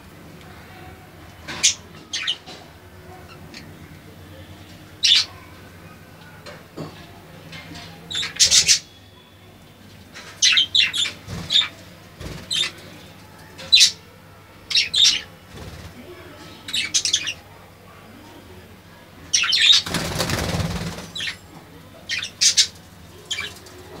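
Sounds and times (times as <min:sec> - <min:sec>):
budgerigars chirping: 0:22.1 - 0:22.7.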